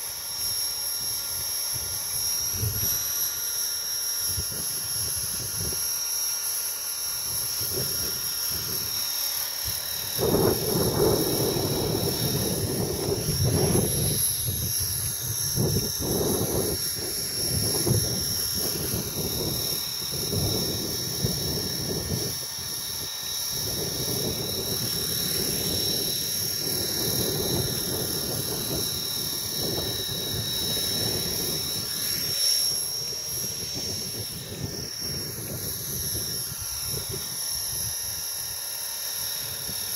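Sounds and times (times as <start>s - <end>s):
rc helicopter motor whine: 0.0s - 39.9s
wind buffeting microphone: 1.3s - 3.1s, 9.6s - 38.3s.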